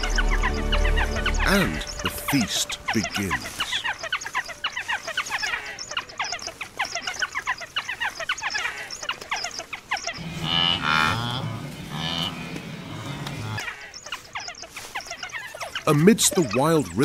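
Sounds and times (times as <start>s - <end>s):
wild dogs twittering: 0.0s - 17.0s
wildebeest grunting: 10.2s - 13.8s.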